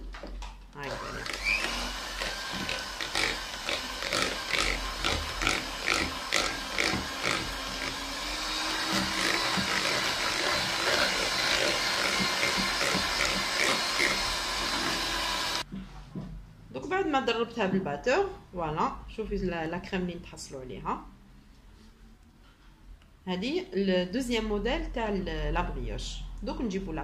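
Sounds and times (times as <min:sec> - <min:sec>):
electric mixer whisking: 0:00.8 - 0:15.6.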